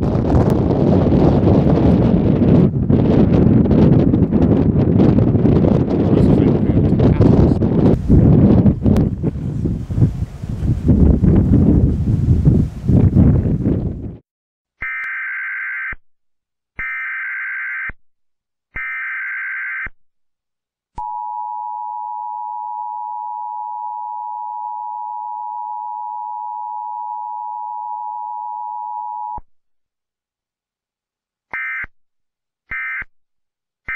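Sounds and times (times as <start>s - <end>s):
two-pitch attention tone: 21.0s - 29.4s.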